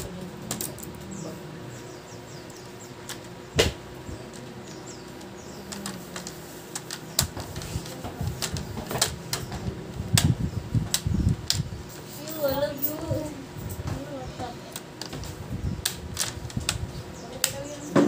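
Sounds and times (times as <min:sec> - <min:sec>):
plastic clicks and snaps: 0:05.1 - 0:10.3, 0:17.4 - 0:17.6.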